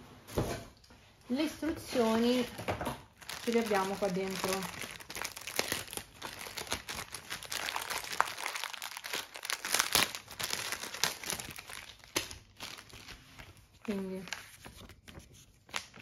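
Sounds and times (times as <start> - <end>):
plastic bags crinkling: 2.0 - 16.0.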